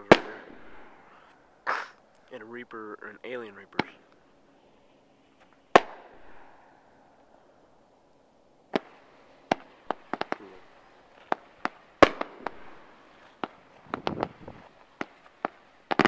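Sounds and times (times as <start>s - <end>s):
faint firework hiss: 0.0s - 2.7s, 3.6s - 16.0s
volley of firework reports: 0.0s - 4.1s, 8.8s - 12.8s.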